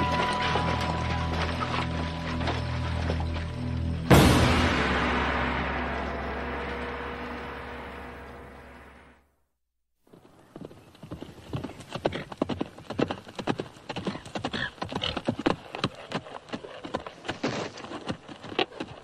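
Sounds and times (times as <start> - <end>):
horse hoofbeats galloping on grass: 0.0 - 4.0, 10.1 - 19.0.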